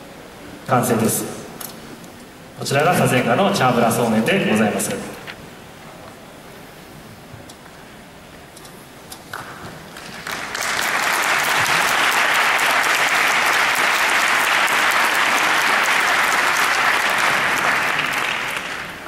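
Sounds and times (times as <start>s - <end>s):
audience applauding: 9.3s - 19.0s.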